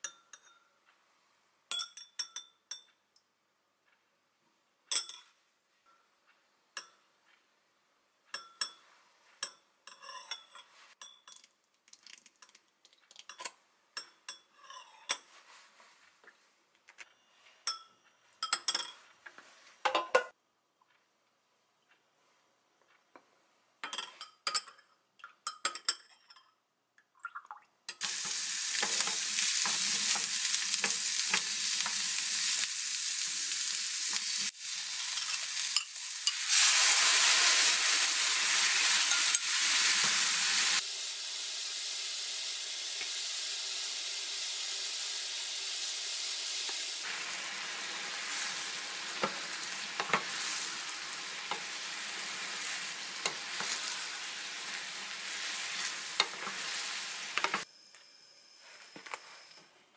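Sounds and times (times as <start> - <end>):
spoon clinking in glass: 1.7 - 3.0, 4.9 - 5.3, 9.4 - 11.5, 35.0 - 36.5
vegetables sizzling in frying pan: 28.0 - 57.6
spatula scraping pan: 48.1 - 57.6.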